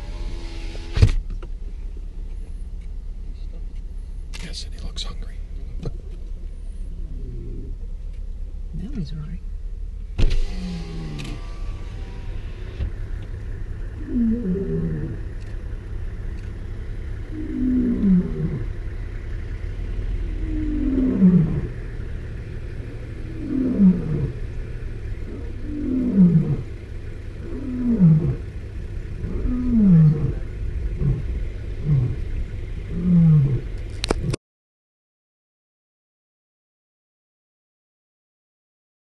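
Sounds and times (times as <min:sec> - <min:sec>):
lion roaring: 0:07.0 - 0:07.8, 0:13.8 - 0:15.5, 0:16.4 - 0:34.4.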